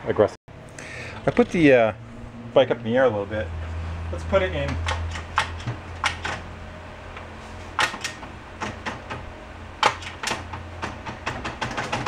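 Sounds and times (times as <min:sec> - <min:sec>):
gear lever clicking and clunking: 0:04.6 - 0:06.4, 0:07.1 - 0:12.0.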